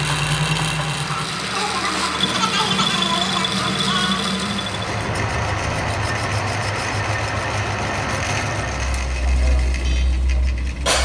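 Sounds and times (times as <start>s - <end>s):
metal lathe motor hum: 0.0s - 10.8s.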